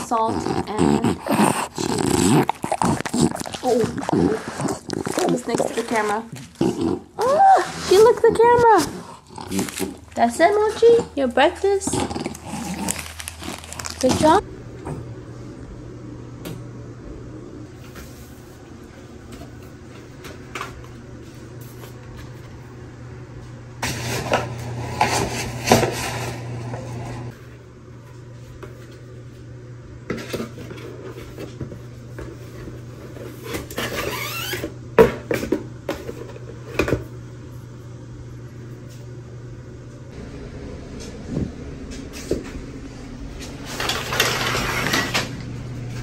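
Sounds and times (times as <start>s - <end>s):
steady low hum: 0.0s - 46.0s
cardboard box rustling and scraping: 2.0s - 6.6s.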